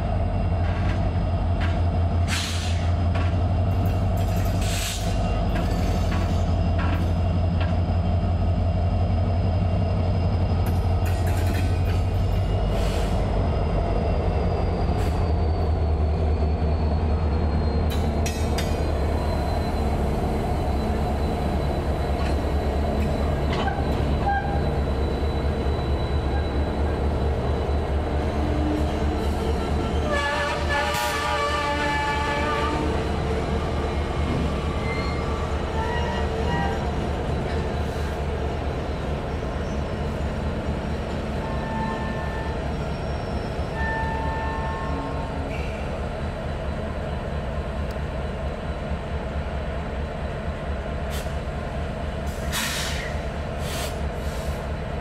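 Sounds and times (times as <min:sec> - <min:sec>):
diesel locomotive engine rumble: 0:00.0 - 0:55.0
multi-tone train horn: 0:28.3 - 0:33.0, 0:35.7 - 0:36.8, 0:41.4 - 0:42.6, 0:43.7 - 0:45.3.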